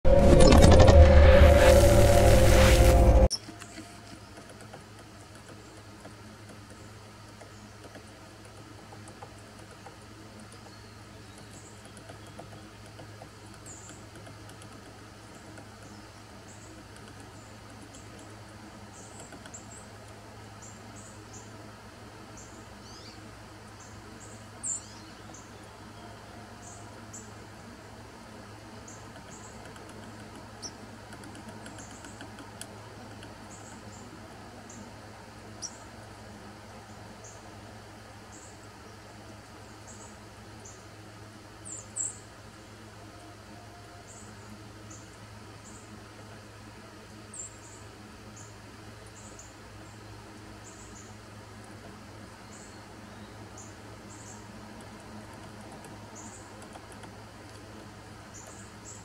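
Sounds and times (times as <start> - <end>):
steady low hum: 0.0 - 59.0
woodpecker tapping: 4.2 - 19.9, 29.0 - 34.0, 54.2 - 59.0.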